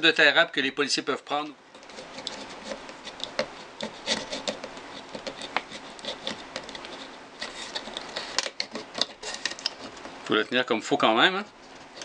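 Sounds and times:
knife sawing zip tie: 1.8s - 9.9s.

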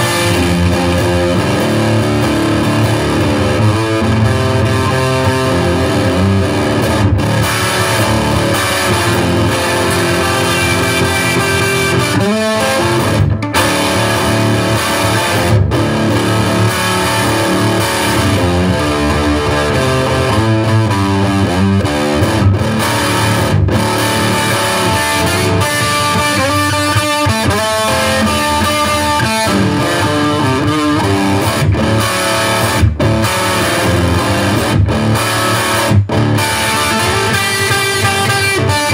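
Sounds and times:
electric guitar blues riff: 0.0s - 38.9s.

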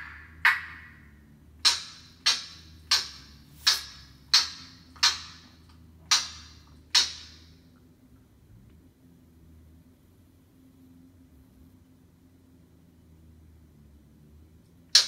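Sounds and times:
parrot imitating sharp knocks: 0.0s - 1.0s, 1.6s - 5.4s.

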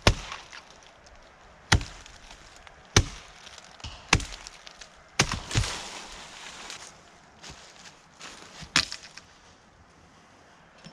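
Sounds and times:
axe chopping into wood: 0.0s - 0.8s, 1.7s - 5.9s.

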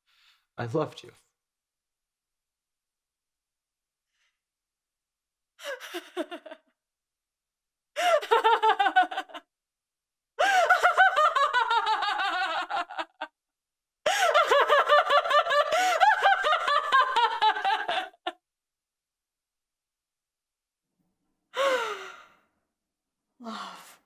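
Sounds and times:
woman laughing loudly: 5.7s - 6.6s, 8.0s - 9.4s, 10.4s - 13.3s, 14.1s - 18.4s.

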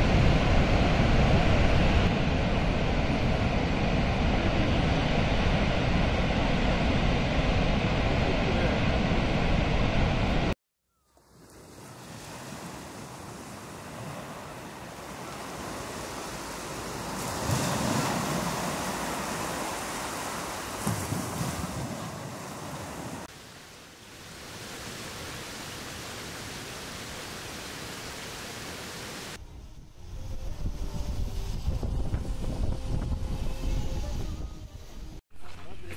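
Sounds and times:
wind blowing across microphone: 0.0s - 10.5s, 29.3s - 35.2s
sea surf rushing: 0.0s - 10.6s, 11.3s - 29.5s.

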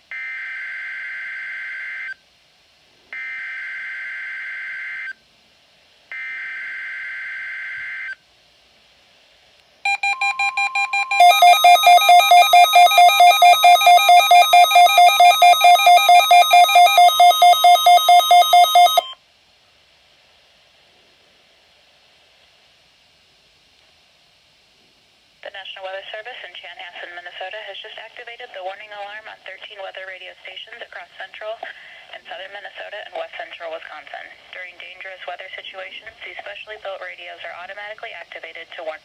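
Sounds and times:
rapid loud beeping over steady tone: 9.9s - 19.2s.

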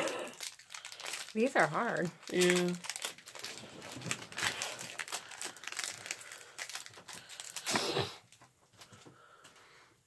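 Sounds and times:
foil wrapper crinkling and tearing: 0.0s - 8.9s.

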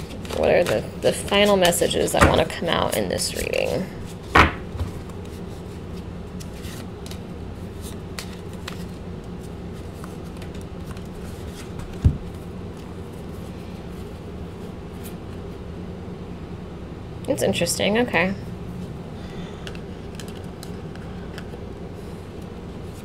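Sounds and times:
cards being shuffled: 0.0s - 15.5s, 19.6s - 21.6s
low hum: 3.9s - 23.0s.

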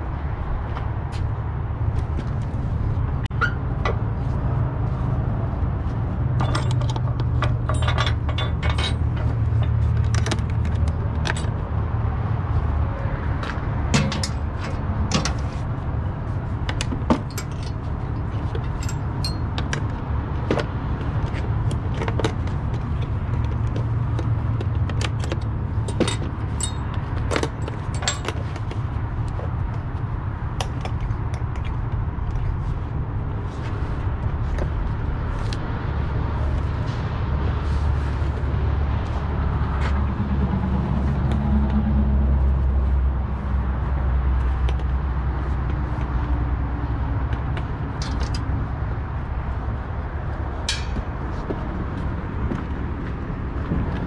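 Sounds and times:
metal chains clinking: 6.4s - 9.8s, 18.7s - 19.5s, 26.0s - 28.4s.

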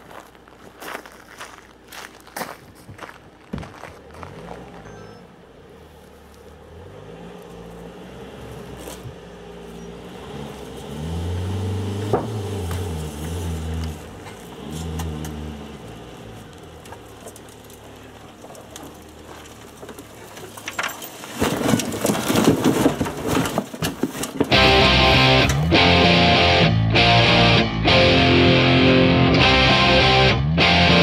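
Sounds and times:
engine revving: 6.6s - 18.1s, 24.5s - 31.0s
metal crashing and clattering: 18.3s - 25.6s.

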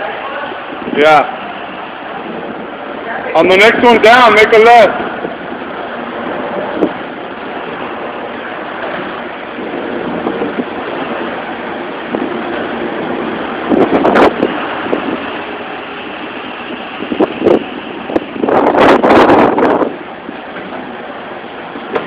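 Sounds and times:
skateboard wheels rolling on concrete: 4.9s - 22.0s.

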